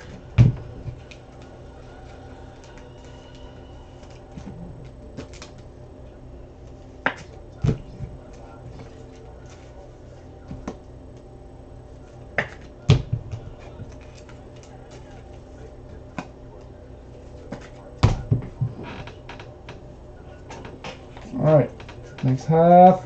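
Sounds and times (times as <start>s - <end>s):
steady low hum: 0.0s - 23.0s
hands handling card boxes: 4.0s - 5.7s, 17.2s - 18.5s.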